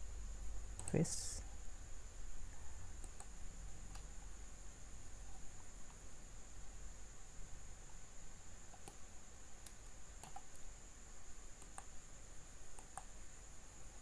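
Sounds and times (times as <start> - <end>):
faint high whine: 0.0 - 14.0
computer mouse clicks: 0.7 - 1.1, 3.0 - 4.1, 8.7 - 9.0, 9.6 - 10.7, 11.6 - 12.0, 12.7 - 13.2.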